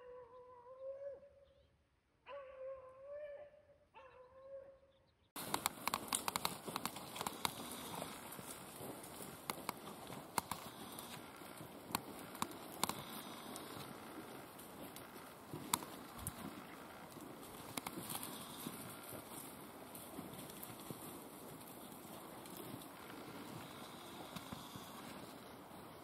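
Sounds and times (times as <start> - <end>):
dog baying: 2.3 - 4.8
hiss with sharp crackles: 5.4 - 26.0.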